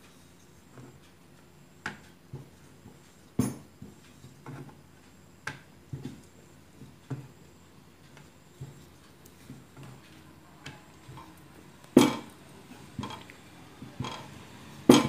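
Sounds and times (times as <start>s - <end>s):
rolling pin knocking on board: 12.0s - 12.3s.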